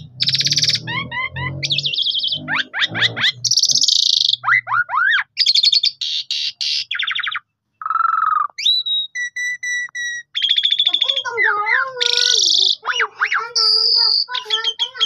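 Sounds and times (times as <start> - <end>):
starling singing: 0.0 - 15.0
bird whistled notes: 7.0 - 11.3.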